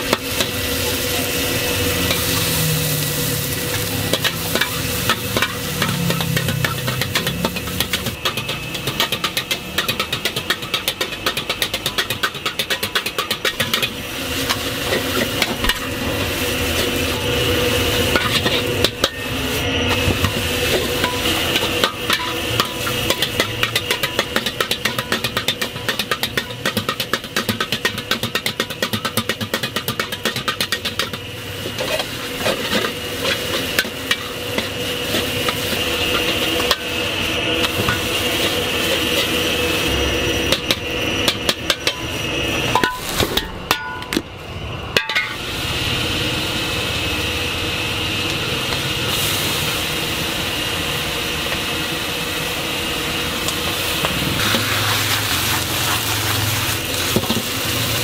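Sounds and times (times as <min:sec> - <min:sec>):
metal ladle scraping a wok: 0:00.0 - 0:44.1
food sizzling: 0:00.0 - 0:58.0
gas burner hissing: 0:00.0 - 0:58.0.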